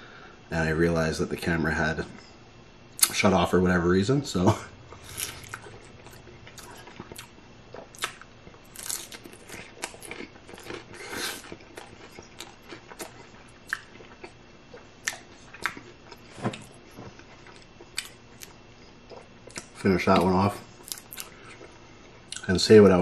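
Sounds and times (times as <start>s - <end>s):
taco shell crunching: 4.9s - 16.2s.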